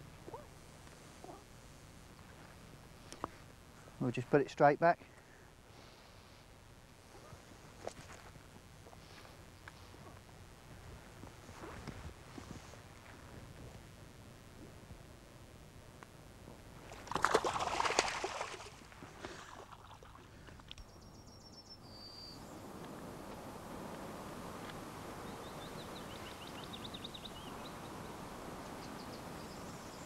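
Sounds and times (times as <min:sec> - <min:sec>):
outdoor hiss: 0:00.0 - 0:30.0
fish splashing in water: 0:16.9 - 0:20.4
small birds singing: 0:20.7 - 0:22.6, 0:25.2 - 0:30.0.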